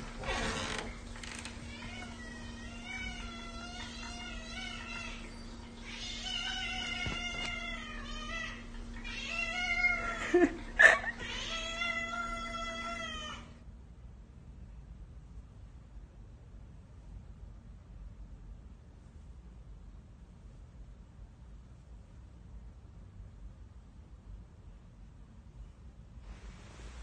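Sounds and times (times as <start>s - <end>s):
steady low hum: 0.0s - 27.0s
cat meowing: 1.6s - 13.5s.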